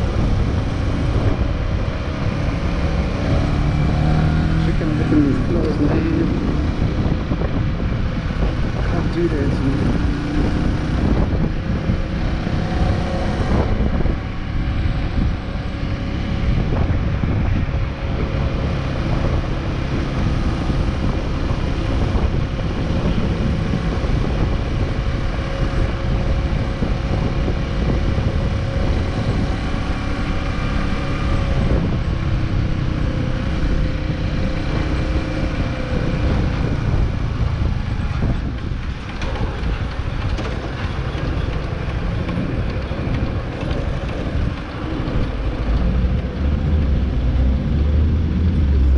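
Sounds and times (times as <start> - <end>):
wind noise on microphone: 0.0 - 48.9.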